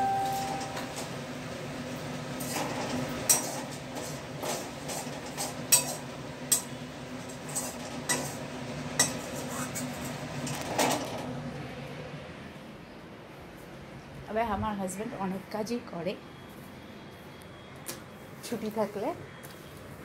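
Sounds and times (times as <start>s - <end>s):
utensils and dishes clinking: 0.0s - 1.1s, 2.4s - 11.2s.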